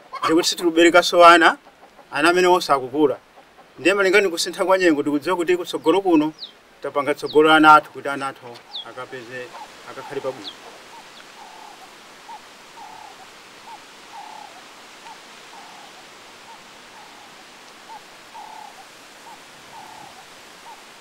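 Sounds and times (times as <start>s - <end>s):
steady outdoor hiss: 0.0s - 21.0s
bird two-part call: 8.6s - 21.0s.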